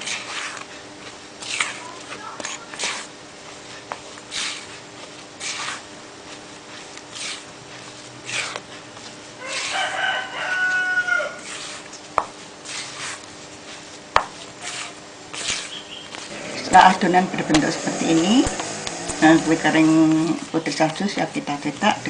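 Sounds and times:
hands rubbing dough in a bowl: 0.0 - 22.0
rooster crowing: 9.4 - 11.5.

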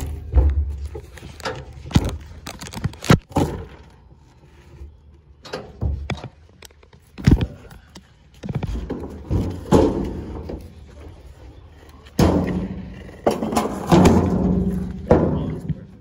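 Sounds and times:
rustling and bumping: 0.0 - 4.0, 5.6 - 11.4.

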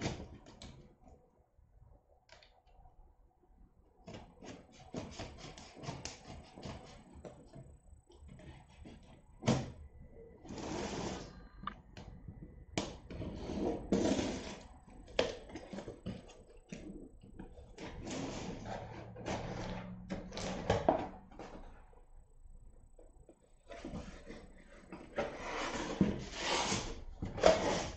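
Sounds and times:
box scraping on wooden floor: 10.5 - 11.4, 13.1 - 14.7, 17.8 - 21.7, 23.7 - 27.9.

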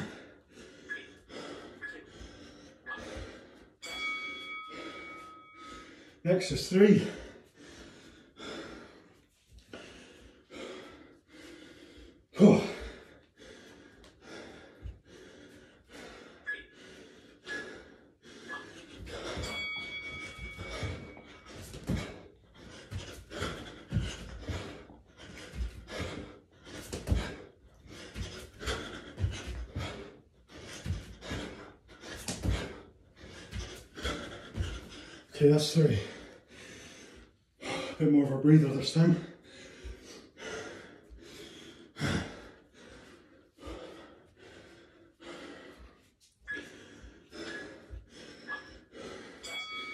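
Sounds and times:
man breathing hard and gasping: 0.0 - 49.9
low thuds from exercise: 19.0 - 35.0.

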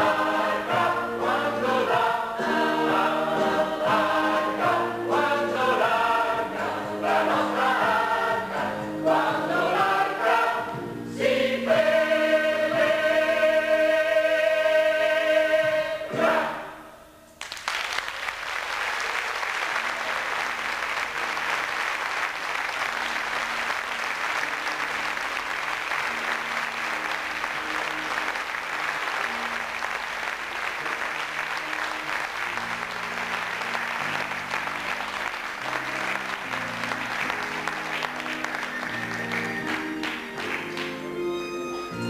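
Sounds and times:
choir holding a chord: 0.0 - 17.1
soft music: 0.0 - 17.4, 20.2 - 42.0
audience applauding: 17.4 - 41.2.

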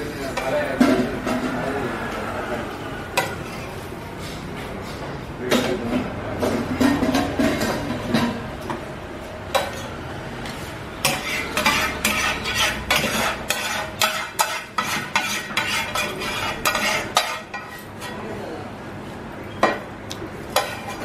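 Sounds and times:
metal ladle scraping frying pan: 11.0 - 18.2, 20.5 - 21.0.

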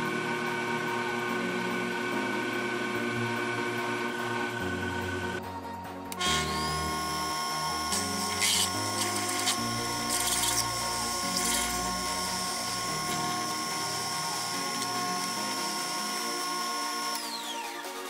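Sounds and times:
lathe motor whine: 0.0 - 5.4, 6.2 - 18.0
drill scraping into brass: 6.2 - 17.3.

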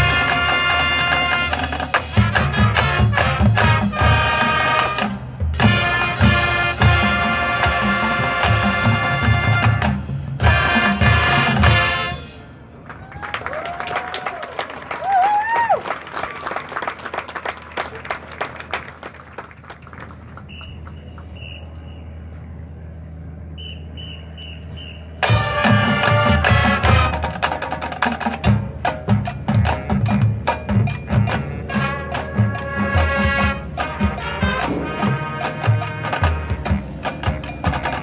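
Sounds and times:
marching band with brass and drums: 0.0 - 13.3, 16.8 - 38.0
soft high notes: 34.5 - 38.0.

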